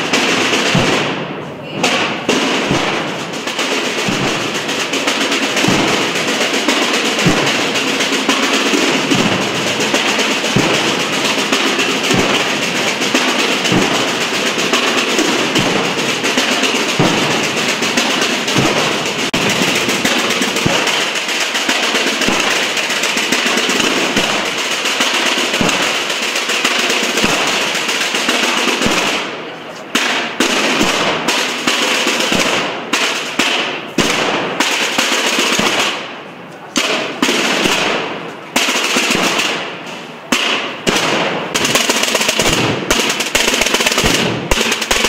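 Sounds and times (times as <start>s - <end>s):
snare drums rolling: 0.0s - 45.0s
bass drum strokes: 0.7s - 20.9s.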